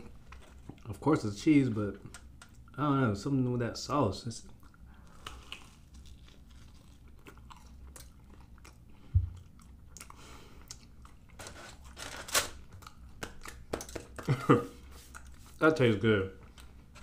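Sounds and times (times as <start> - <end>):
person chewing crunchy food: 4.5 - 12.0, 12.6 - 15.6, 16.4 - 17.0.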